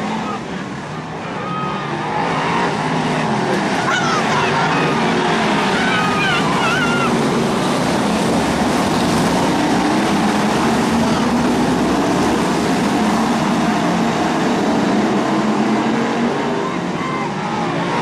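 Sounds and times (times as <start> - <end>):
racing car engines: 0.0 - 18.0.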